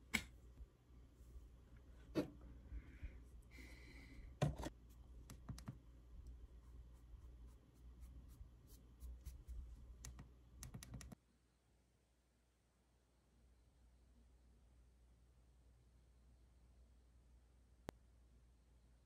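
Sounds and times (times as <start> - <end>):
faint clicks and taps: 4.4 - 6.4.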